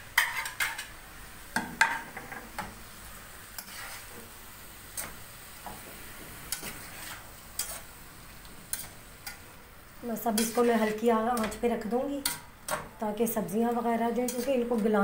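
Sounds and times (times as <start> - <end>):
food sizzling: 0.0 - 15.0
spoon scraping metal pot: 10.3 - 11.6.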